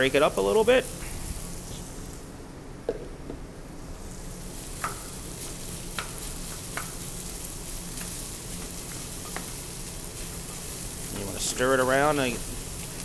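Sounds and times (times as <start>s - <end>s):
food sizzling in butter: 0.0s - 2.3s, 3.8s - 13.0s.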